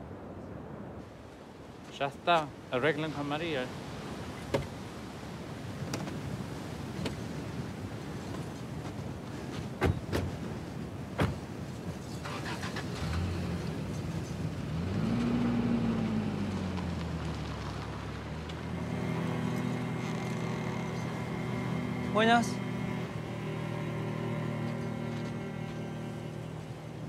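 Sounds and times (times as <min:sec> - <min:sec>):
low drone rising and sinking: 0:18.6 - 0:27.0.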